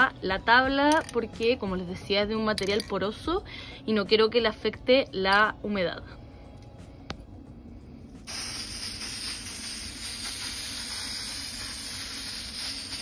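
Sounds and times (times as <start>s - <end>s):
aerosol can spraying hiss: 8.2s - 13.0s.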